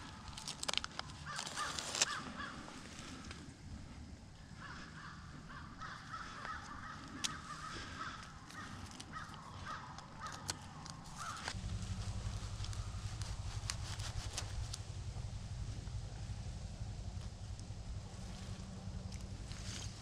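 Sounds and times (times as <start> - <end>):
paper tag clicks and rustles: 0.0 - 2.2, 8.5 - 11.6
steady low rumble: 2.0 - 20.0
rapid repeated animal calls: 4.6 - 14.6.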